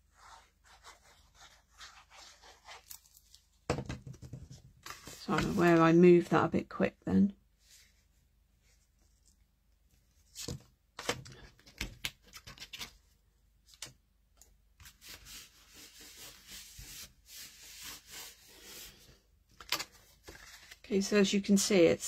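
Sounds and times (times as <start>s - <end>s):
paper rustling: 14.8s - 20.9s
hands rubbing across paper: 14.9s - 19.1s.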